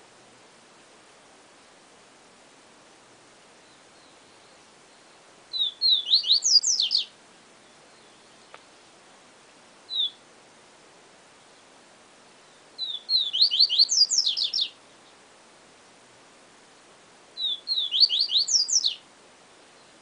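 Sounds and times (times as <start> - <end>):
bird whistling song: 3.6 - 7.1, 9.9 - 10.2, 12.4 - 14.8, 17.4 - 19.0.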